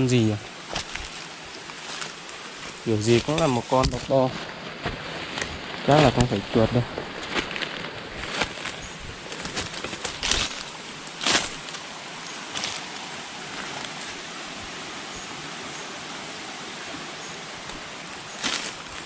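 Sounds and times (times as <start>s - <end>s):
forest stream rushing: 0.0s - 19.0s
scuffing noises: 0.7s - 11.8s, 17.7s - 19.0s.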